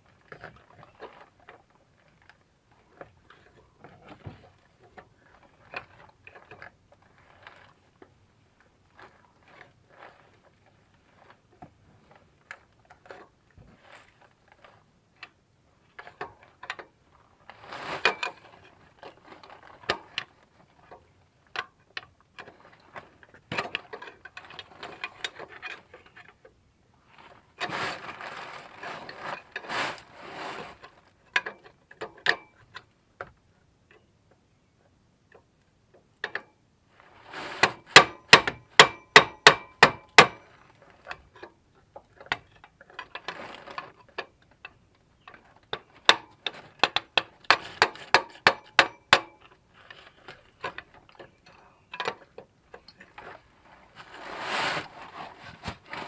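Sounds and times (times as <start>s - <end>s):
metal clicks and knocks: 44.1s - 49.6s.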